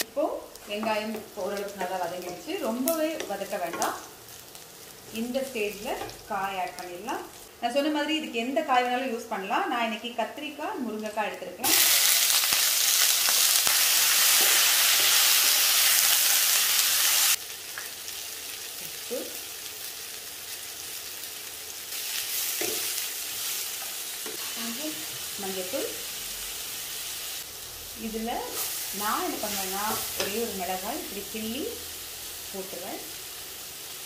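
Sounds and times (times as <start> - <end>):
vegetables sizzling in hot oil: 0.0 - 34.0.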